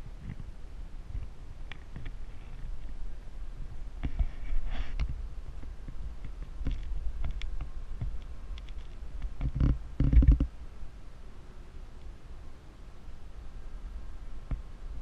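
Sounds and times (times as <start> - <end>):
wind buffeting microphone: 0.0 - 10.6.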